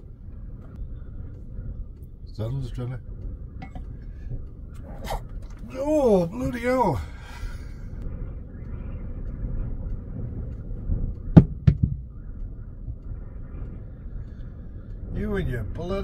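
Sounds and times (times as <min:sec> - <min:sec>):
wind buffeting a van: 0:00.0 - 0:16.0
sharp knocks: 0:11.4 - 0:12.1.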